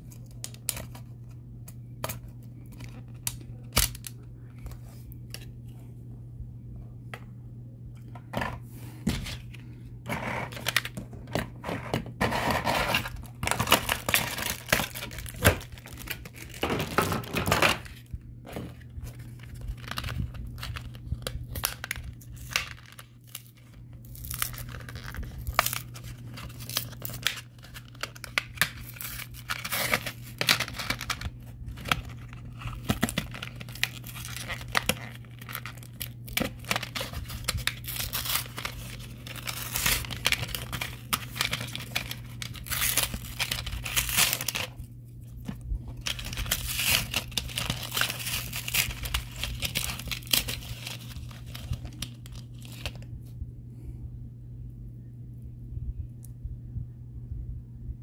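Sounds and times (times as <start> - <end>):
steady low hum: 0.0 - 58.0
blister pack crackling and tearing: 2.0 - 4.2, 10.2 - 11.0, 12.3 - 53.1.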